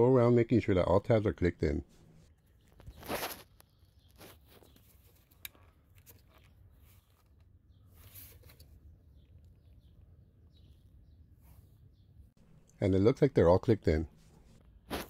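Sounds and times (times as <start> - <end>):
soft rustle: 1.9 - 9.9.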